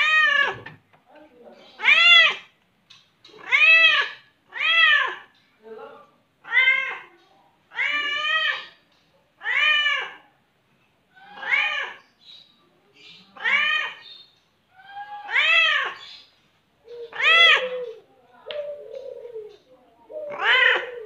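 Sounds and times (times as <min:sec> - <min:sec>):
cat meowing: 0:01.8 - 0:02.5, 0:03.3 - 0:05.3, 0:06.4 - 0:07.1, 0:07.7 - 0:08.7, 0:09.4 - 0:10.2, 0:11.2 - 0:12.0, 0:13.4 - 0:14.0, 0:14.8 - 0:16.0, 0:17.1 - 0:18.0, 0:20.3 - 0:21.0.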